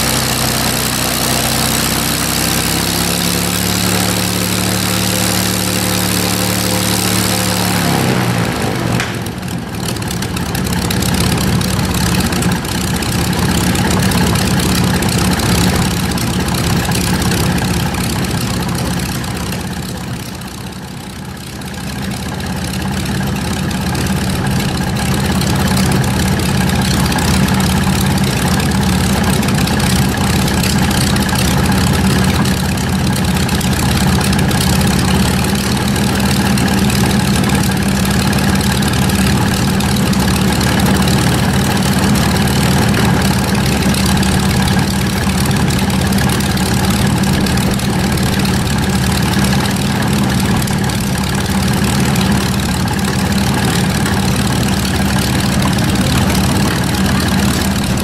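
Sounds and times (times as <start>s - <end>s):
aircraft engine idling: 0.0s - 58.0s.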